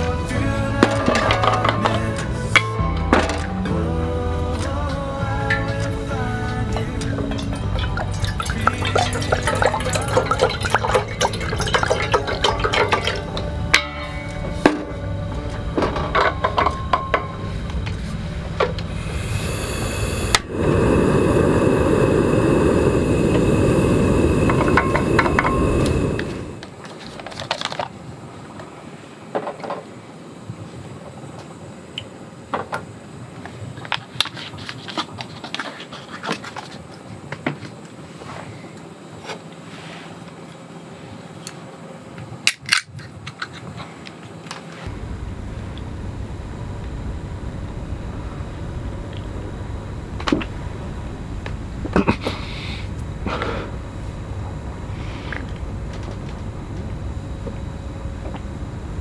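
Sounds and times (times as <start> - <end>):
low background hiss: 0.0 - 27.0
liquid pouring into a metal pot: 7.6 - 13.3.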